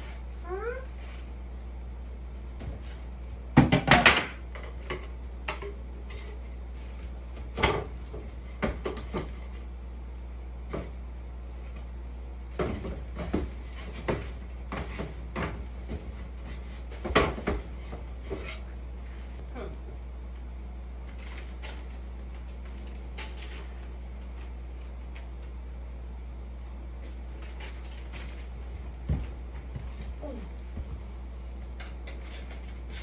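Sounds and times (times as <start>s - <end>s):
wooden boards knocking and clattering: 3.6s - 4.6s.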